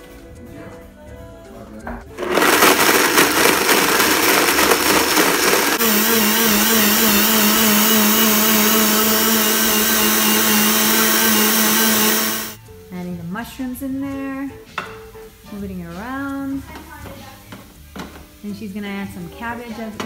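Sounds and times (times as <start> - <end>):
blender grinding nuts: 2.1 - 12.6.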